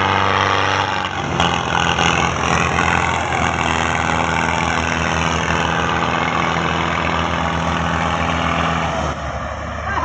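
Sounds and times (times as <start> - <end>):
tractor diesel engine running: 0.0 - 10.0.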